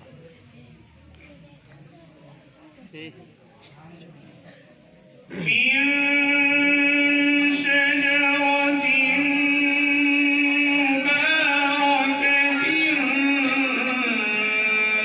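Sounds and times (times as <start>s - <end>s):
man chanting melodically: 5.4s - 15.0s.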